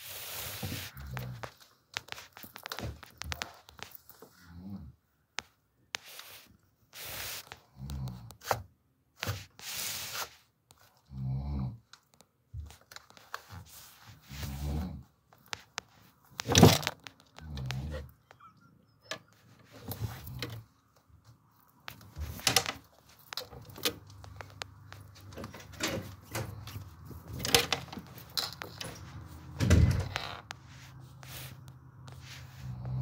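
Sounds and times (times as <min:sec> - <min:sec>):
rustling: 0:00.0 - 0:04.6, 0:12.0 - 0:18.3, 0:19.3 - 0:33.0.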